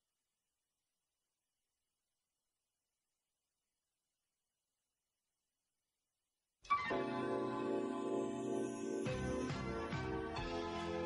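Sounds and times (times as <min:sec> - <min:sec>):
instrumental background music: 0:06.7 - 0:11.0.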